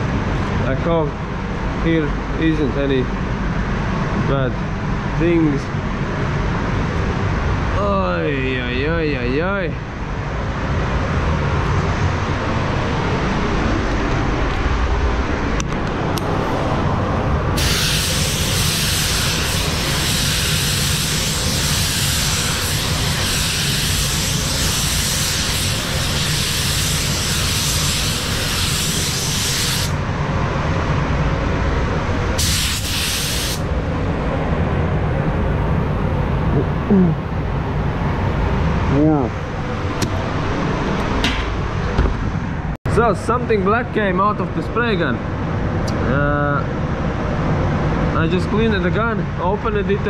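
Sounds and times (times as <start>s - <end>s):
steady low rumble: 0.0s - 50.0s
compressed air hissing from spray gun: 17.6s - 30.0s, 32.4s - 33.7s.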